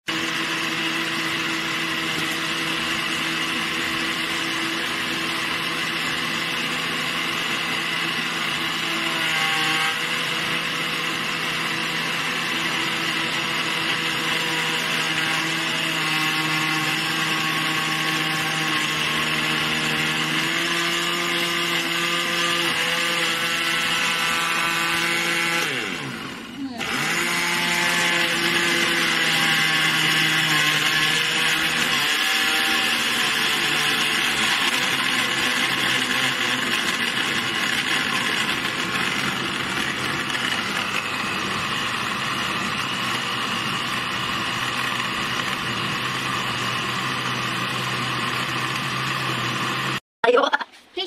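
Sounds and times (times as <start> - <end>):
blender motor whining: 0.0 - 50.4.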